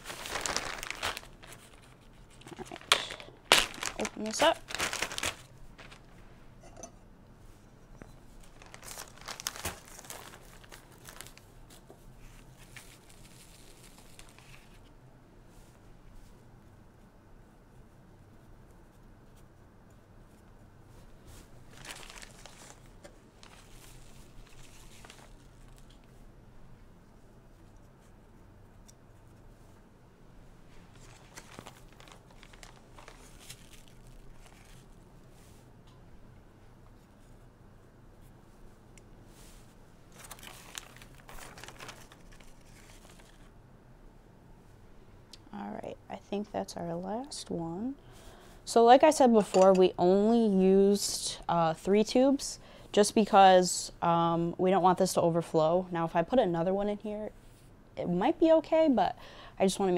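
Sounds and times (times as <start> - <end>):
plastic bag crinkling: 0.0 - 6.2, 8.3 - 14.8, 21.6 - 26.0, 30.8 - 35.0, 40.1 - 43.5
low steady hum: 0.0 - 59.9.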